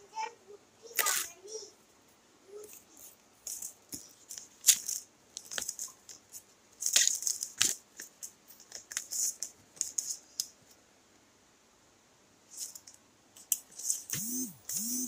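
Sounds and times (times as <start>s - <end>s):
paper rustling and crinkling: 2.6s - 10.2s.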